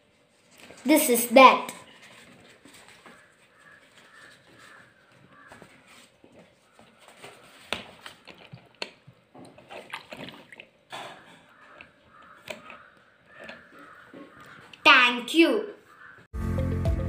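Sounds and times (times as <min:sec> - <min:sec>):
water dripping into paper cup: 0:07.6 - 0:13.8.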